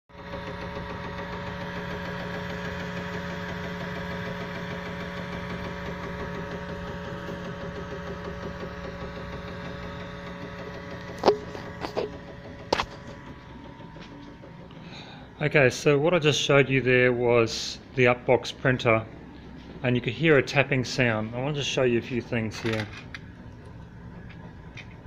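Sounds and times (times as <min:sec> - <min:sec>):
extruder tapping: 0:07.3 - 0:14.6.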